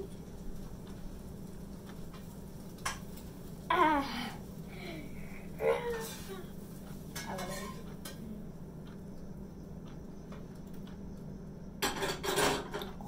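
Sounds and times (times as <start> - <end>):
metal utensils clinking on dishes: 7.1 - 8.2, 11.8 - 13.0.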